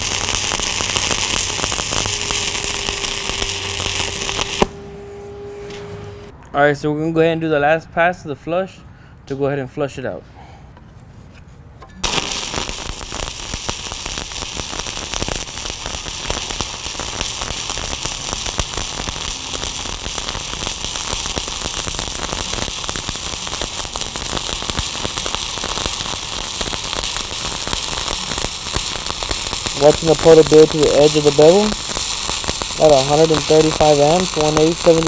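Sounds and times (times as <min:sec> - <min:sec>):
welding arc crackling and sizzling: 0:00.0 - 0:04.8, 0:12.0 - 0:35.0.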